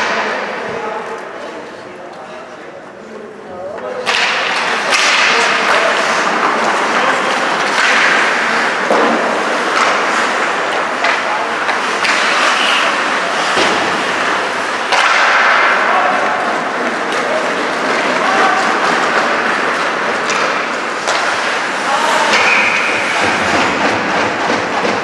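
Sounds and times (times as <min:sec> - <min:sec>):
hockey sticks and puck clacking: 0:00.0 - 0:02.6, 0:03.6 - 0:25.0
players' voices: 0:00.0 - 0:25.0
skate blades scraping ice: 0:04.1 - 0:25.0.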